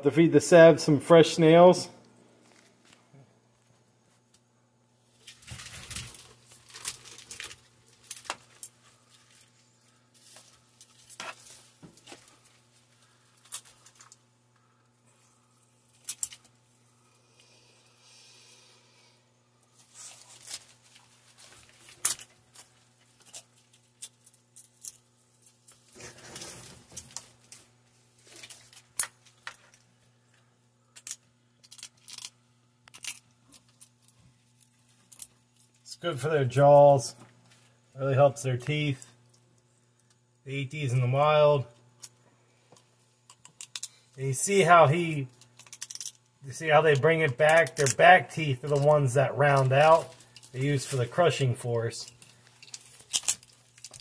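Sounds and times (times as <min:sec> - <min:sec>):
snail shells crunching: 0:05.2 - 0:14.2, 0:30.9 - 0:35.9, 0:42.8 - 0:49.0, 0:52.1 - 0:54.0
snail shells cracking in jaws: 0:30.9 - 0:33.9, 0:52.1 - 0:54.0.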